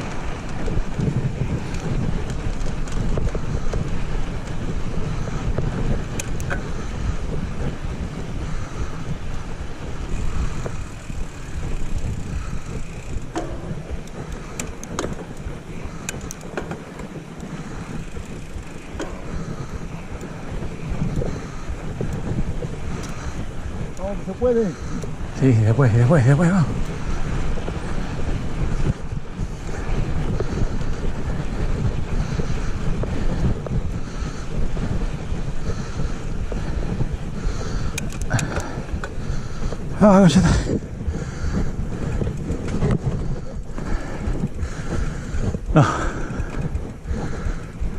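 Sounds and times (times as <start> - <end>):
sharp clicks and rattles: 0.0 - 7.7, 10.1 - 27.1, 37.5 - 47.9
bike tyres crunching on gravel: 0.0 - 47.9
wind rumbling on microphone: 0.0 - 47.9.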